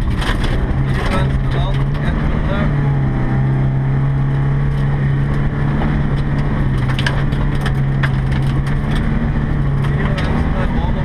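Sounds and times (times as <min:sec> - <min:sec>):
stones clicking against car: 0:00.0 - 0:02.3, 0:04.7 - 0:10.5
tyres crunching gravel: 0:00.0 - 0:03.2, 0:04.6 - 0:11.0
car engine running: 0:00.0 - 0:11.0.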